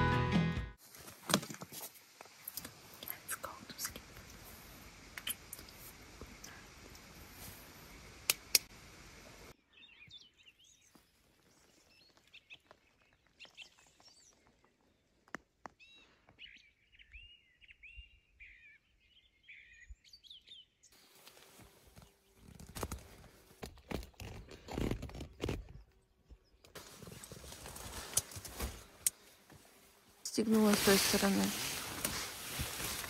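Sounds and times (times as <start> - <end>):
steady hiss: 0.8 - 9.6.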